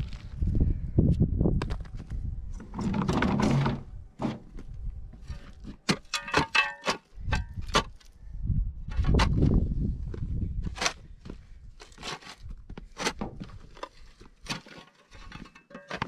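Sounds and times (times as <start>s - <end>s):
spade scraping shale: 5.2s - 8.1s, 11.8s - 16.0s.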